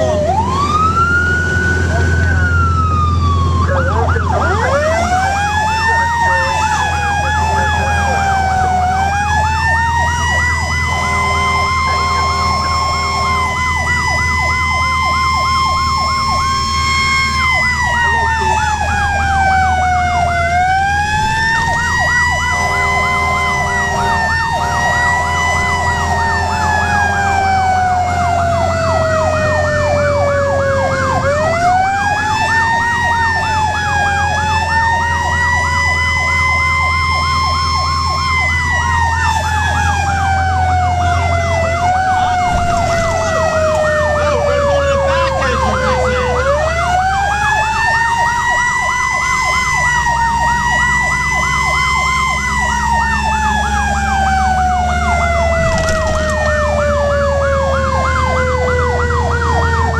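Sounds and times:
diesel engine droning: 0:00.0 - 0:59.9
fire engine siren wailing: 0:00.0 - 0:59.9
rapid yelping siren: 0:00.0 - 0:59.9
steady horn tone: 0:10.6 - 0:13.9, 0:22.4 - 0:27.0.

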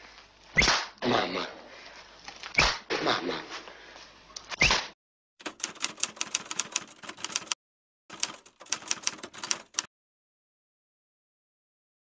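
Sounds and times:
typewriter keys clacking: 0:05.4 - 0:09.9.

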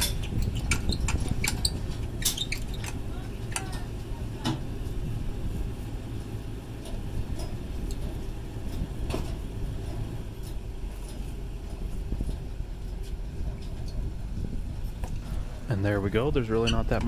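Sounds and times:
trailer jack clicking: 0:00.0 - 0:04.6
vehicle engine humming: 0:00.0 - 0:17.0.

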